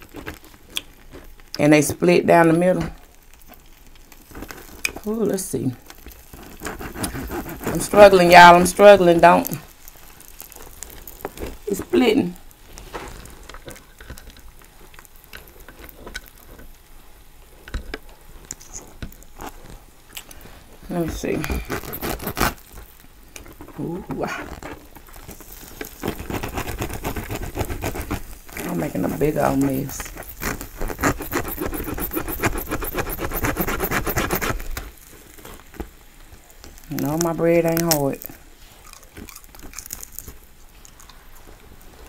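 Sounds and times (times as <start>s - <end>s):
bread tearing with crackles: 0.0s - 1.6s, 2.7s - 42.0s
knife cutting crusty bread: 5.9s - 8.2s, 21.5s - 22.7s, 24.5s - 34.8s.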